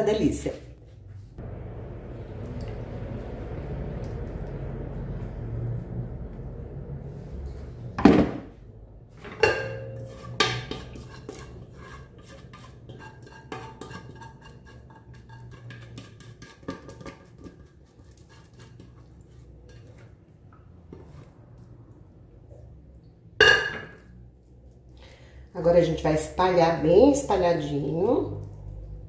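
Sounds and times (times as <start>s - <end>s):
sharp clanks on pot: 9.3s - 11.4s, 23.4s - 24.1s
spatula scraping metal pot: 9.3s - 20.1s
pot ringing faintly: 9.4s - 10.1s.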